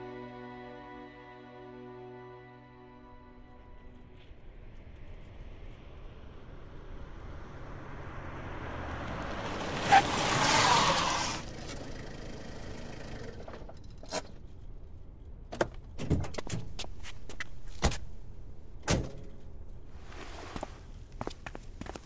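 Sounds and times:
car driving up and stopping: 0:03.8 - 0:14.8
quiet engine running: 0:03.8 - 0:15.3.

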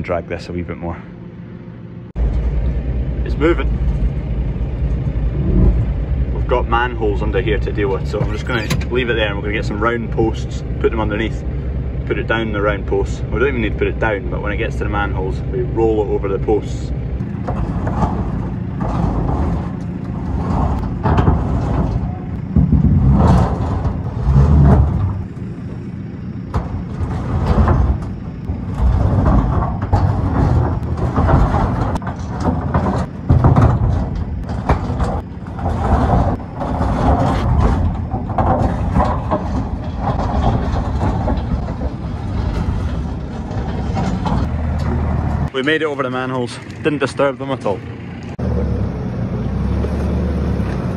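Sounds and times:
heavy machine engine under load: 0:01.0 - 0:50.9
knocks and creaks of metal: 0:02.1 - 0:48.4
container dragged over gravel: 0:16.7 - 0:25.4, 0:26.2 - 0:44.5.

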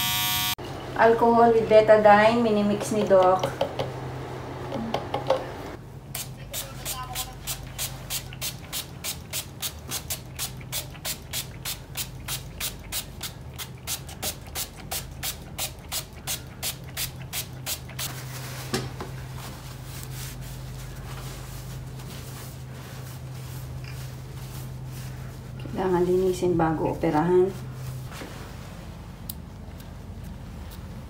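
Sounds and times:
pump spray bottle spraying: 0:06.2 - 0:18.1.

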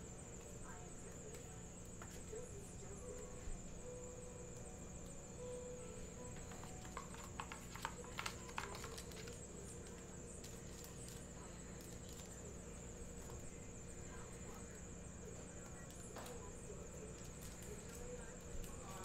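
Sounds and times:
low electrical hum: 0:00.0 - 0:19.0
plastic card sleeve handled: 0:06.4 - 0:12.4
trading card packs rustling: 0:06.4 - 0:12.5.

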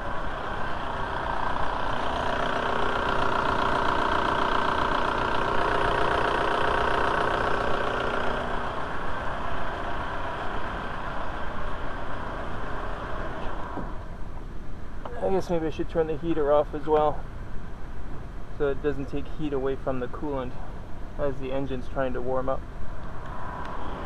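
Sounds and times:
diesel engine idling: 0:00.0 - 0:13.8.

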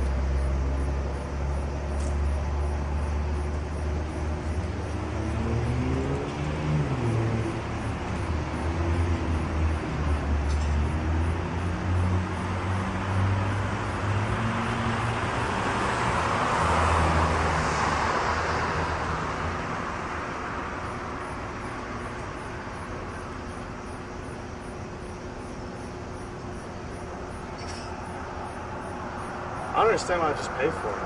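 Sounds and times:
low engine hum: 0:00.0 - 0:31.0
car driving past: 0:02.2 - 0:21.4.

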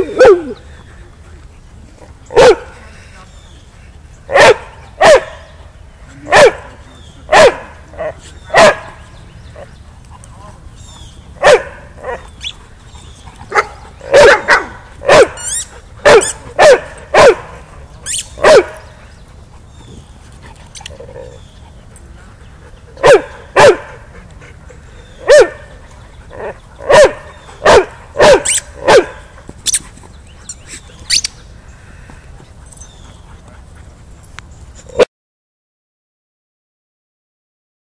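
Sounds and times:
dog barking: 0:02.4 - 0:02.7, 0:04.3 - 0:05.4, 0:06.3 - 0:07.7, 0:08.5 - 0:08.9, 0:11.4 - 0:12.2, 0:13.5 - 0:15.4, 0:16.0 - 0:17.4, 0:18.4 - 0:18.8, 0:23.0 - 0:24.0, 0:25.2 - 0:25.6, 0:26.8 - 0:29.2.

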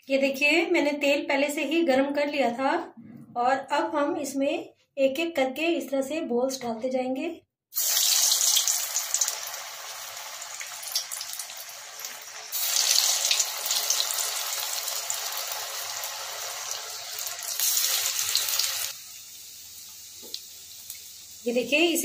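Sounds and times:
food deep-frying in hot oil: 0:07.8 - 0:22.0.

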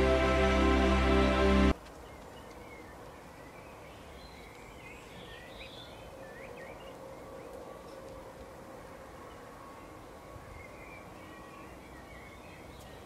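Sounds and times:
low outdoor background noise: 0:00.0 - 0:13.0
small songbirds chirping: 0:01.9 - 0:07.3, 0:09.3 - 0:13.0.

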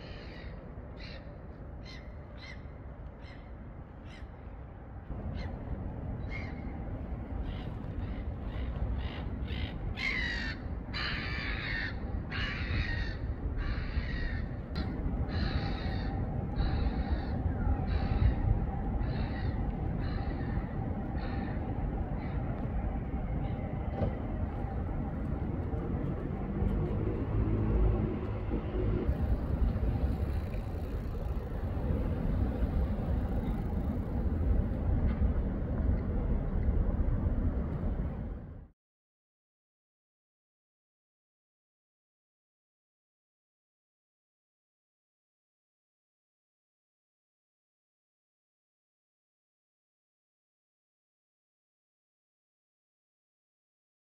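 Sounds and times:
steady low rumble: 0:01.5 - 0:38.7
crow cawing: 0:09.5 - 0:14.5, 0:15.3 - 0:17.3.

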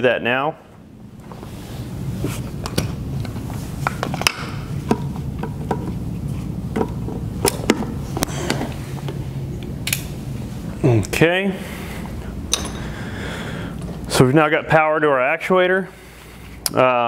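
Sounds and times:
steady low hum: 0:00.0 - 0:17.0
cables and connectors clicking: 0:06.8 - 0:10.1.

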